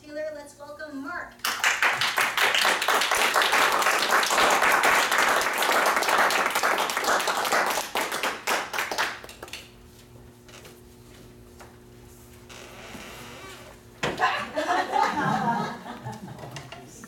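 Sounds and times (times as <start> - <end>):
faint steady hum: 0.0 - 17.0
audience applauding: 1.4 - 9.6.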